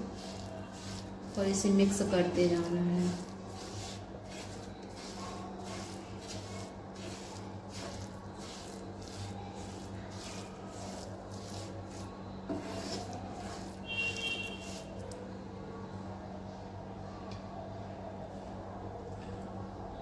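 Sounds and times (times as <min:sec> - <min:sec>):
wooden spatula scraping a pan: 0:00.0 - 0:15.0.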